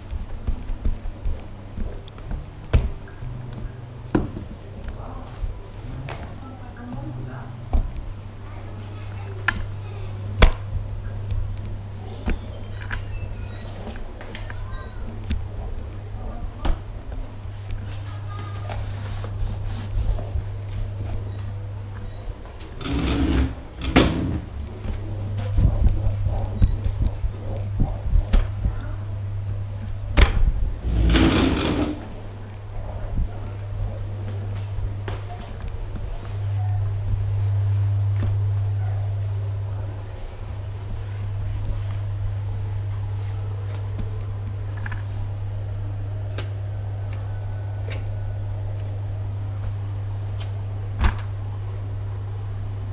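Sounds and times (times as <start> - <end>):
steady low hum: 0.0 - 52.9
mop scraping on floor tiles: 17.8 - 21.3, 22.6 - 27.3, 30.8 - 32.2.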